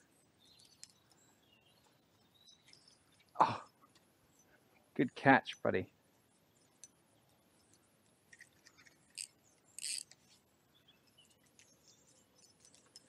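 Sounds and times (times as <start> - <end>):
faint small clicks and ticks: 0.5 - 4.1, 6.5 - 13.0.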